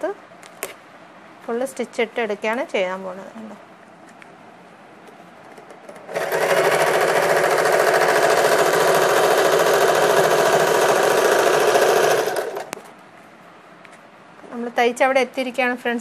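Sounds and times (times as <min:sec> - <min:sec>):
electric sewing machine running: 0:06.1 - 0:12.8.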